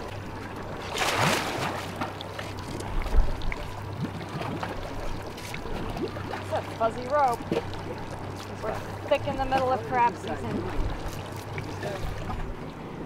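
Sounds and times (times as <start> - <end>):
low steady hum: 0.0 - 13.0
trap splashing into water: 0.8 - 2.2.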